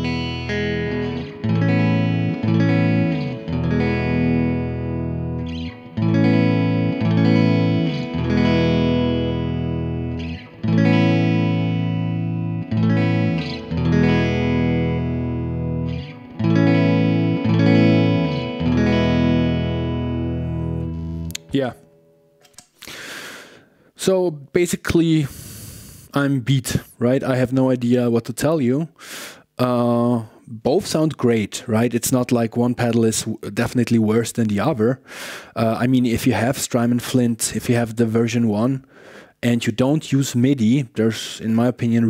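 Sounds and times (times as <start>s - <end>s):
electric guitar strumming chords: 0.0s - 22.6s.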